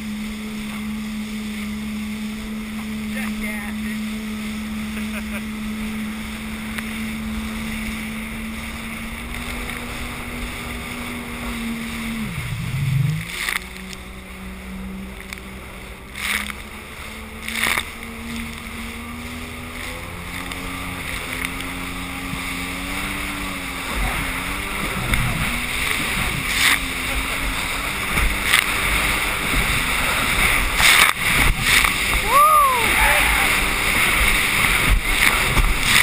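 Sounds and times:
hull slapping choppy water: 0.0 - 36.0
watercraft engine running: 0.0 - 36.0
wind: 0.0 - 36.0
water spray splashes: 16.1 - 36.0.

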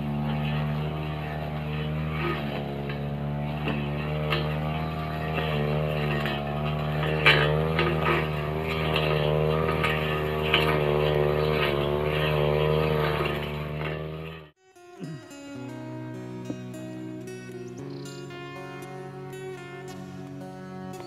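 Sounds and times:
blade ticking on stems: 0.0 - 14.5
brush cutter engine running: 0.0 - 21.0.

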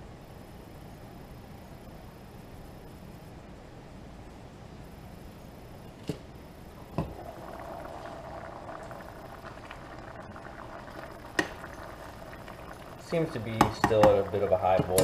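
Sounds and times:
sauce bubbling: 6.8 - 15.0.

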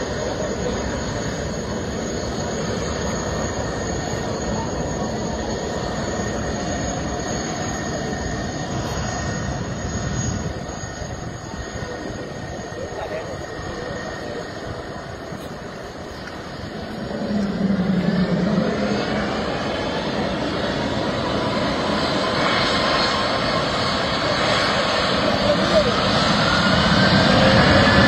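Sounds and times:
faint high whine: 0.0 - 28.0
jet engines roaring: 0.0 - 28.0.

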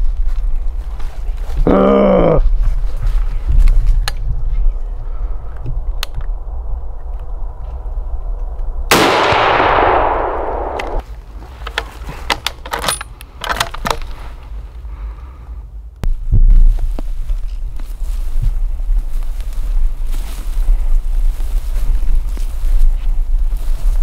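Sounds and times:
rifle shot echoing: 8.9 - 11.0
handling noises: 8.9 - 14.8
sharp clicks: 9.0 - 11.0.

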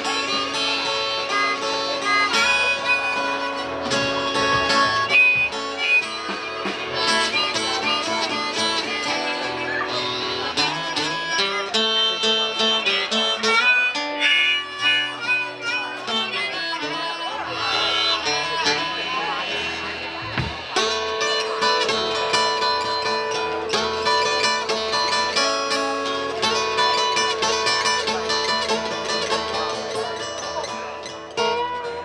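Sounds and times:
harmonica: 0.0 - 32.0
strummed acoustic guitar: 0.0 - 32.0
drum kit beat: 1.4 - 9.9, 18.4 - 30.6.

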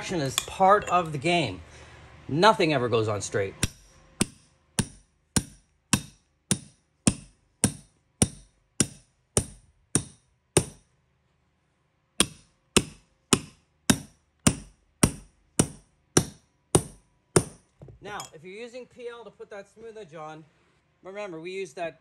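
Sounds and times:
hammer striking carpet tool: 3.6 - 10.8, 12.2 - 18.0.

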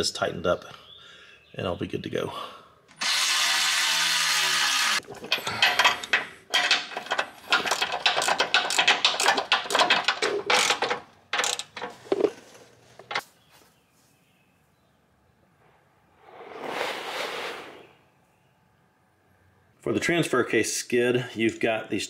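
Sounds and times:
power drill running: 2.9 - 5.0.

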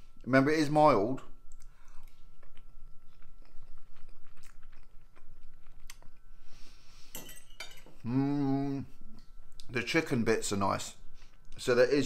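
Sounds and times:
cutlery clinking on plate: 7.2 - 8.0
man humming mmm: 8.0 - 8.9.

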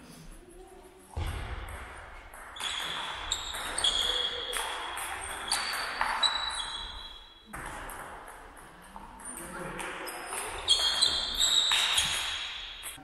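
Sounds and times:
ping-pong ball hits: 1.7 - 6.6.

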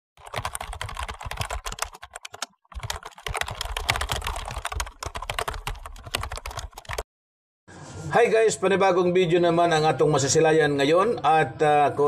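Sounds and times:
rapid keyboard typing: 0.2 - 7.0.

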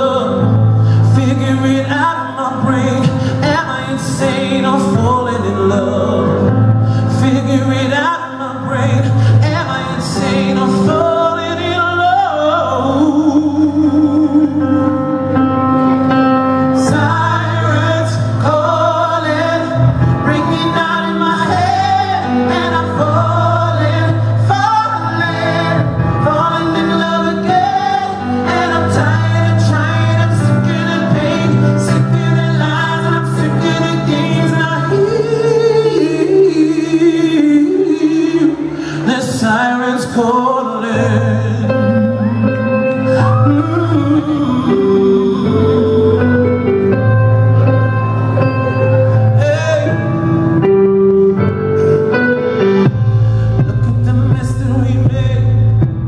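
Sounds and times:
keyboard: 0.0 - 56.0
male singer singing: 0.0 - 56.0
electric guitar: 2.6 - 36.4, 38.5 - 56.0
bass line: 40.2 - 56.0.

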